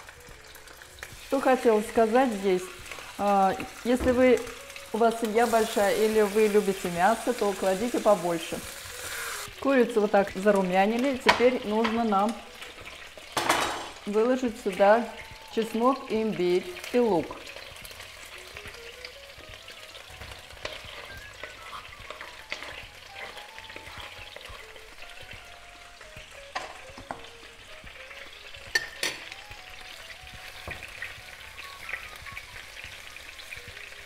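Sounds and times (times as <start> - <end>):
chicken sizzling in hot oil: 0.0 - 34.0
wooden spatula knocking on pan: 26.5 - 27.3.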